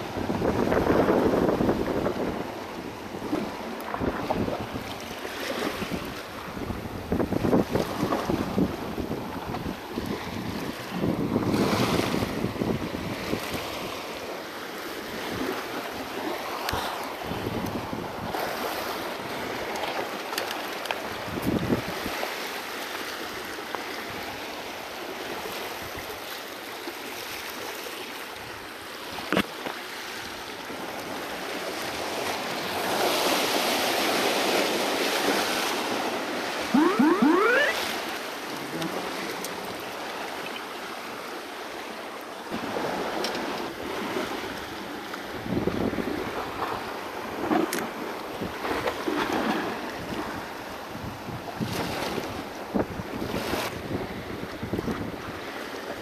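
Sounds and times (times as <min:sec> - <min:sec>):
squeaky rising tones: 0:36.8 - 0:37.8.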